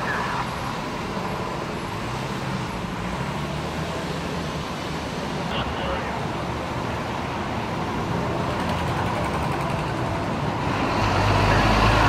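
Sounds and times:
road traffic noise: 0.0s - 12.0s
vehicle engine approaching: 7.6s - 12.0s.

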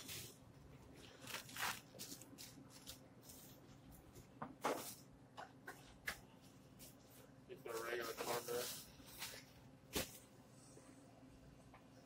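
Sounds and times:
plastic bag crinkling: 0.0s - 3.3s
low background hum: 0.0s - 12.0s.

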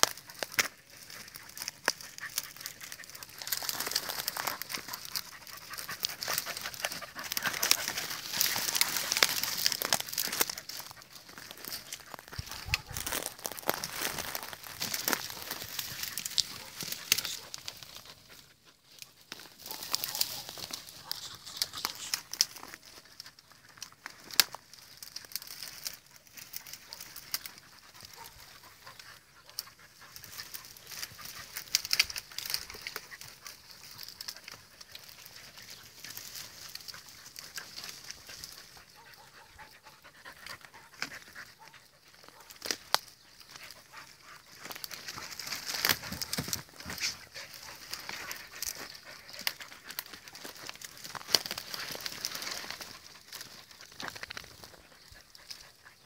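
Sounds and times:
twigs rustling and crackling: 0.0s - 56.0s.

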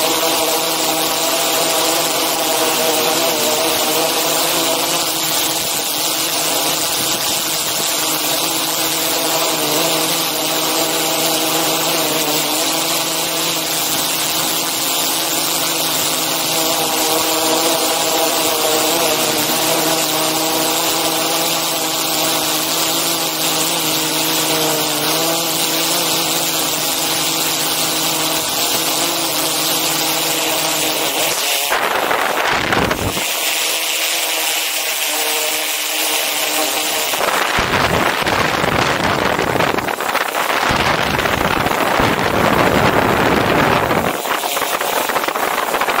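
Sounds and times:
drone propellers whining: 0.0s - 46.0s
rush of noise: 26.6s - 33.6s, 36.7s - 46.0s.

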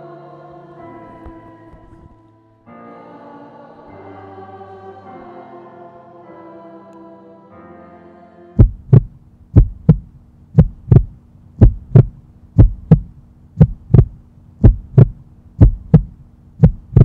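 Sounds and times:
faint steady hum: 0.0s - 17.0s
heartbeat thumps: 8.6s - 17.0s.

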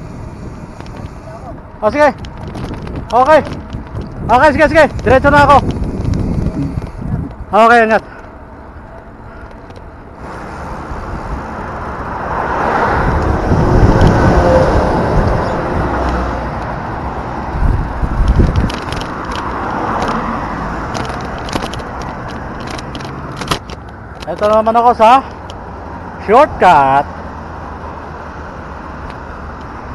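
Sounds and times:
wind rushing over microphone: 0.0s - 8.0s, 10.2s - 24.7s
motor vehicle passing: 0.0s - 29.9s
tyres on asphalt: 0.0s - 29.9s.

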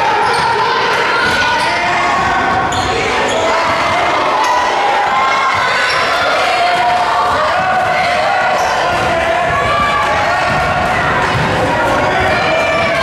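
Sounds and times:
crowd voices echoing: 0.0s - 13.0s.

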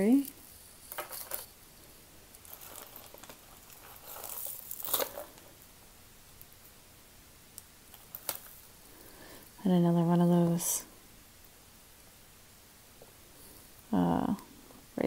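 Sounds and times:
plastic bag crinkling: 2.4s - 5.6s, 7.9s - 8.7s.

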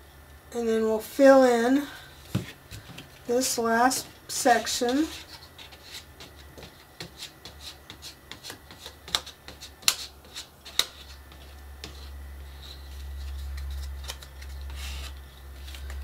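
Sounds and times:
low steady hum: 0.0s - 16.0s
plastic card scraping board: 4.8s - 16.0s.

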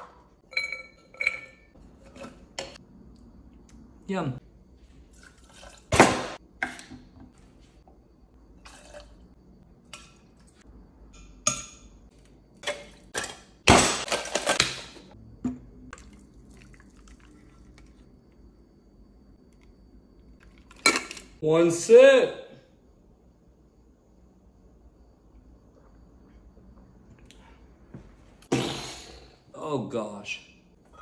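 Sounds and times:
bar tools clattering: 0.4s - 2.8s
liquid pouring: 15.9s - 18.1s.

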